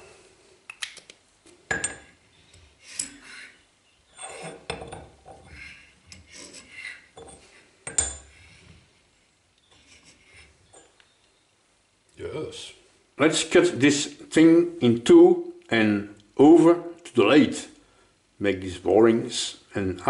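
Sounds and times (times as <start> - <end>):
steel parts clinking and knocking: 1.7 - 2.2, 2.9 - 3.3, 4.2 - 5.5, 7.2 - 8.3.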